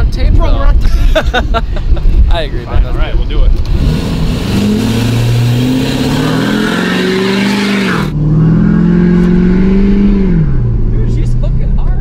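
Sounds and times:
pickup truck engine revving: 0:03.6 - 0:11.0.

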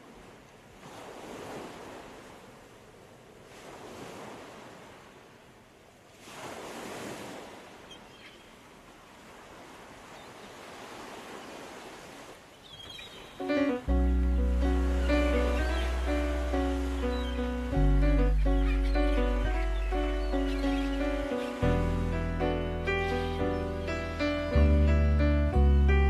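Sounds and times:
small waves washing ashore: 0:00.0 - 0:24.9
music: 0:13.4 - 0:26.0.

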